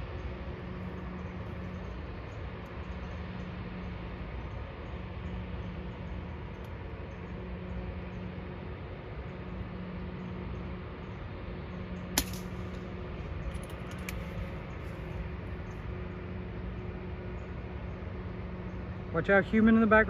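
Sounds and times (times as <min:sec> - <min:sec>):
steady low hum: 0:00.0 - 0:20.0
air rifle shot: 0:12.2 - 0:12.6
light clicks: 0:13.5 - 0:14.3.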